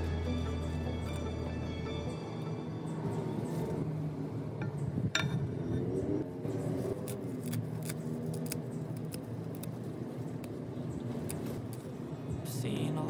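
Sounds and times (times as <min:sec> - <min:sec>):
soft background music: 0:00.0 - 0:04.4
mint leaves snapping: 0:06.8 - 0:11.9.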